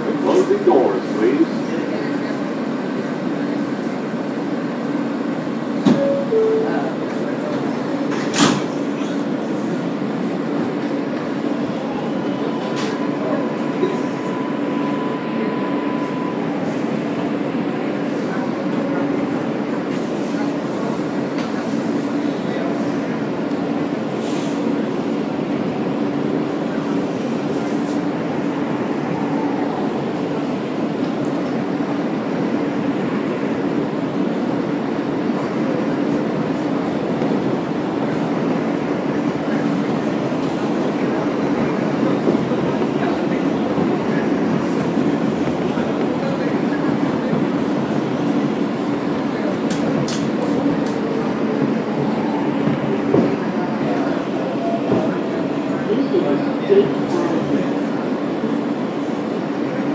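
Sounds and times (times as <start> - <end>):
subway wheels rumbling on track: 0.0 - 59.9.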